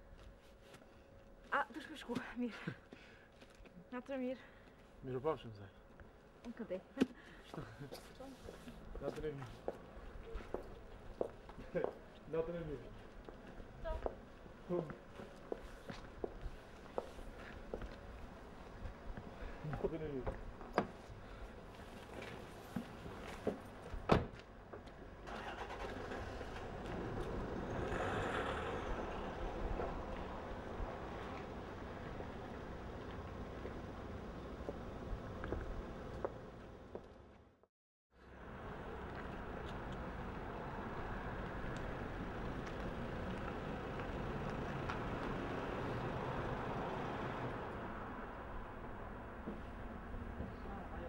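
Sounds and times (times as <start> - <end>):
car engine and road noise: 20.0 - 37.6, 38.2 - 51.0.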